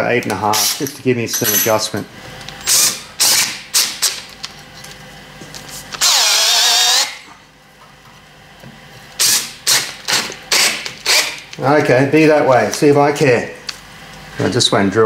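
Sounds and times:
cordless drill bursts and whine: 2.6s - 4.0s, 6.0s - 7.3s, 9.2s - 11.4s.

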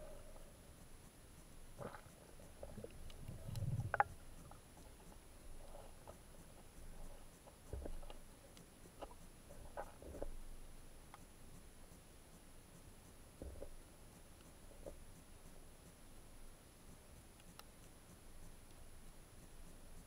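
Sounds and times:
faint ticks: 0.0s - 20.0s
muffled underwater knocks and scrapes: 1.8s - 8.3s, 9.0s - 10.4s, 13.4s - 13.8s.

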